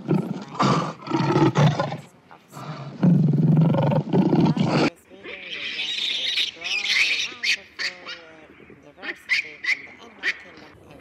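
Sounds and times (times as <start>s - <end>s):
lion roaring: 0.0s - 4.9s.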